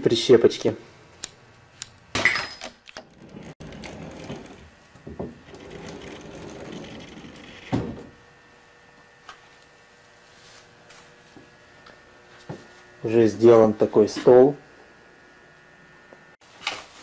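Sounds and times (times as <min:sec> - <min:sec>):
low rumble of movement: 0:03.1 - 0:08.2.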